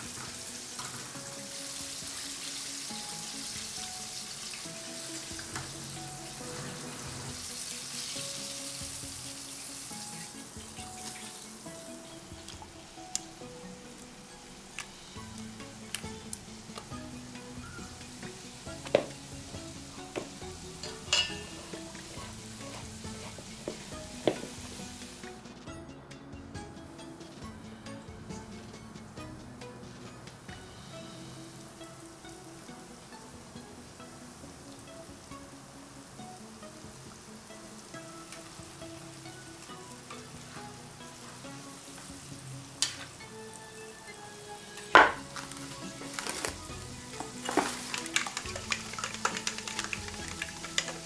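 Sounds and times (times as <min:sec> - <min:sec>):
chicken sizzling in hot oil: 0:00.0 - 0:25.4, 0:30.5 - 0:51.0
soft background music: 0:00.0 - 0:51.0
whisk clinking on bowl: 0:20.8 - 0:21.6
whisk stirring batter in metal bowl: 0:47.2 - 0:51.0.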